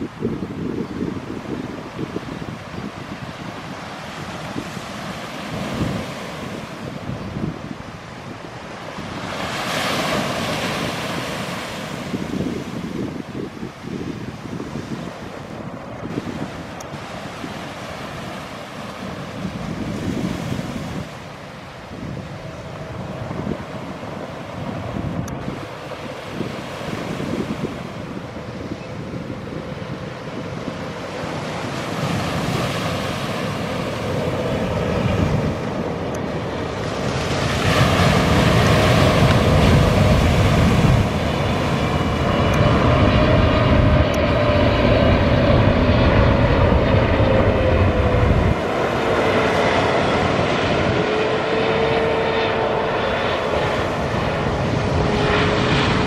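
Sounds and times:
jet engines passing close: 0:00.0 - 0:56.0
whining tone dropping in pitch: 0:41.9 - 0:56.0.

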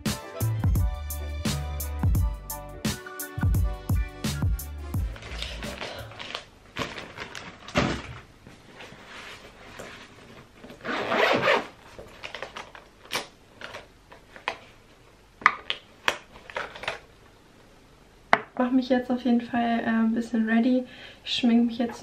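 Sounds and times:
fabric rustling: 0:05.0 - 0:12.8
zipper being pulled open: 0:10.7 - 0:12.4.

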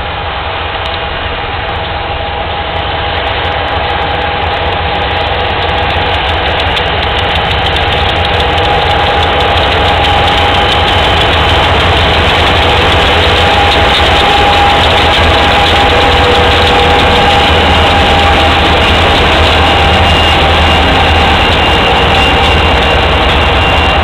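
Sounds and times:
freight locomotives passing: 0:00.0 - 0:24.0.

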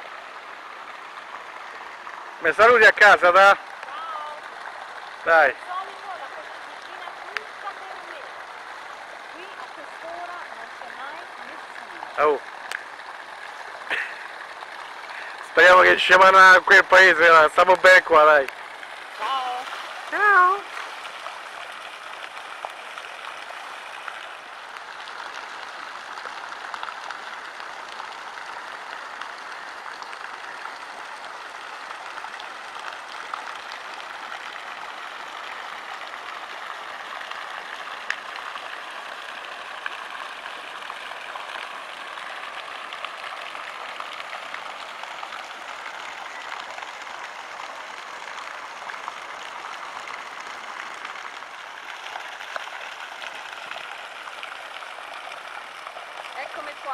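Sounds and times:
running water splashing: 0:00.0 - 0:56.9
small clicks and drips: 0:00.0 - 0:56.9.

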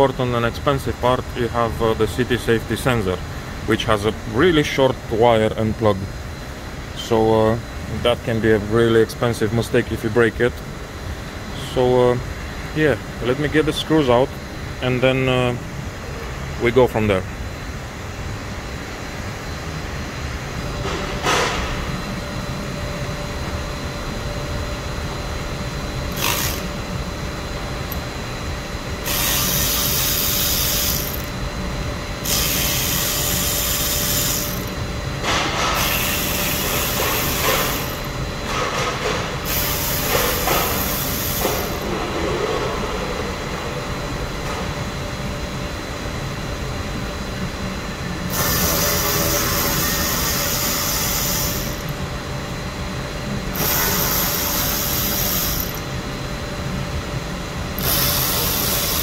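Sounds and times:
workshop hum: 0:00.0 - 0:59.0
power screwdriver spinning: 0:26.1 - 0:26.7, 0:57.8 - 0:59.0.

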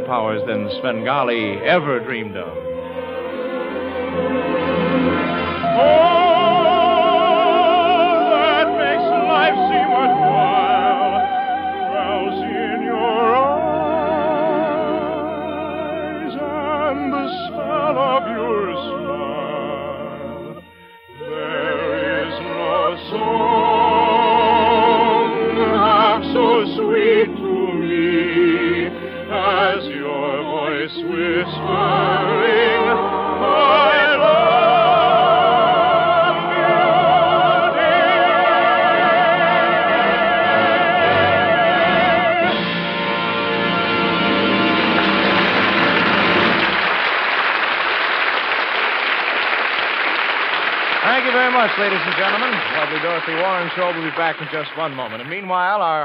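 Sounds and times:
soprano singing with vibrato: 0:00.0 - 0:42.8.

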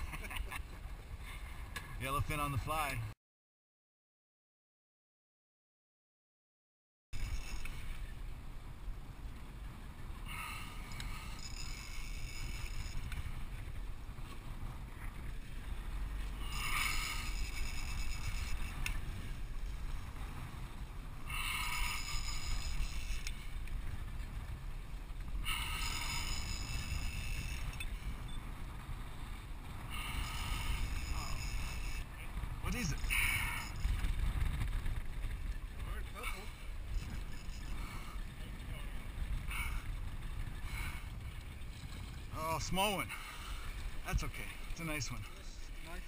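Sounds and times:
fishing reel whirring: 0:07.2 - 0:08.1, 0:10.2 - 0:13.7, 0:16.4 - 0:19.7, 0:21.3 - 0:24.2, 0:25.4 - 0:28.3, 0:29.8 - 0:34.2
outboard motor: 0:07.2 - 0:46.0
wind on microphone: 0:07.2 - 0:46.0.

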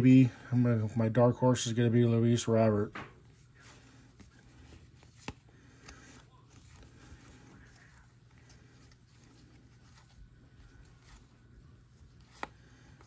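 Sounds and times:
trading cards rustling: 0:03.2 - 0:13.0.

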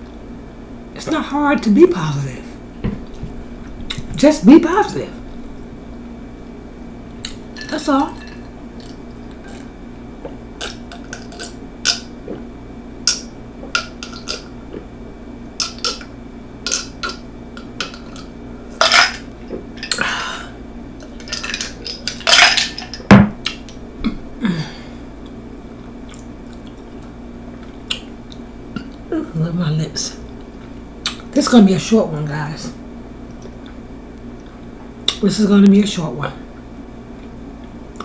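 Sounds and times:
breathy sounds: 0:24.4 - 0:25.1.

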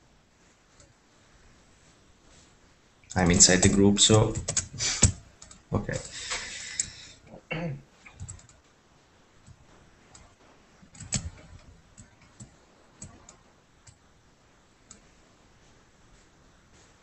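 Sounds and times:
keyboard and mouse clicks: 0:03.1 - 0:07.0, 0:08.1 - 0:08.6, 0:10.9 - 0:14.0.

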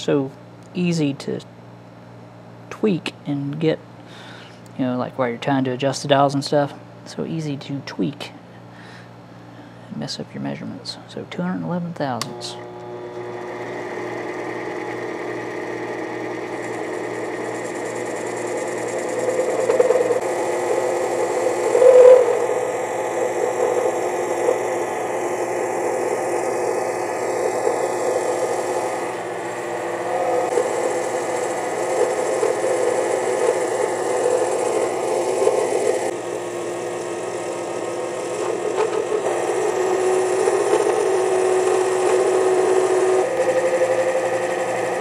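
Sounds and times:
lathe motor whine: 0:12.2 - 0:45.0.

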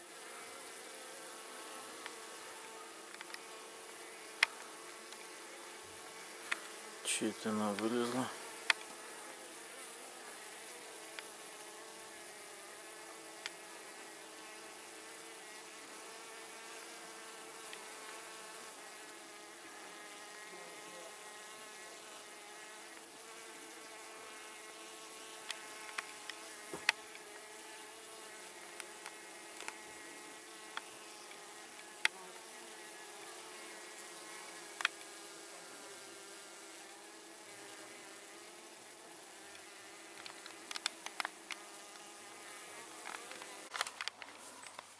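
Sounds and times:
honeybees buzzing: 0:00.0 - 0:44.9.

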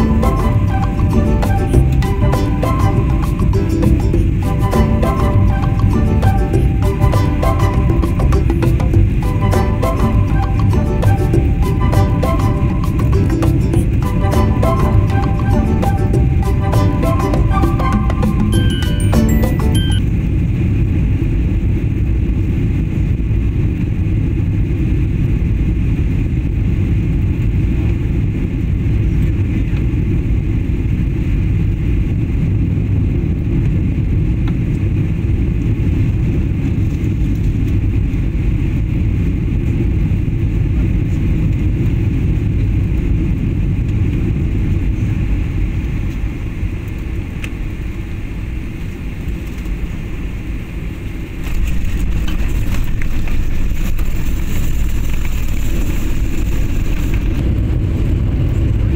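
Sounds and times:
jet engines rumbling in cabin: 0:19.8 - 0:58.9.

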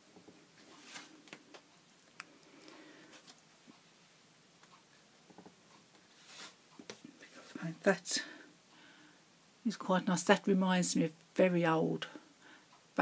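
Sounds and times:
faint rustling: 0:04.6 - 0:07.7.

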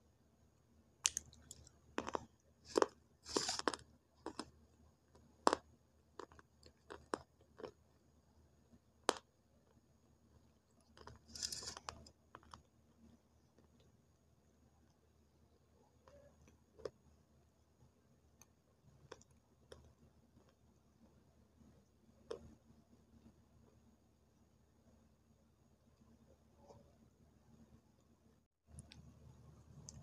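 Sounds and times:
clay crunching and chewing: 0:01.0 - 0:07.9, 0:10.7 - 0:12.8, 0:16.0 - 0:17.1, 0:18.4 - 0:20.6.

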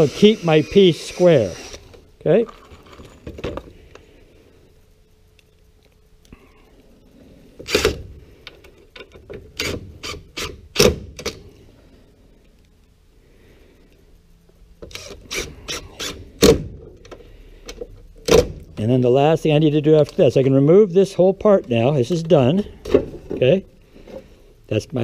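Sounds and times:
cordless drill driving screws: 0:00.0 - 0:02.0.

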